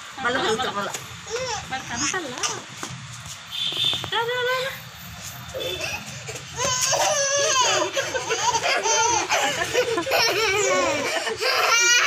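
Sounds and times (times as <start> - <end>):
baby laughing and squealing: 5.6 - 12.0.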